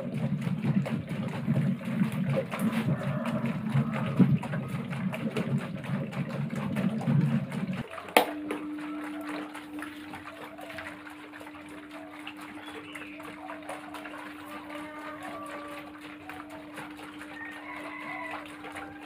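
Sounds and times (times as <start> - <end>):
electric fan humming: 6.4 - 19.0.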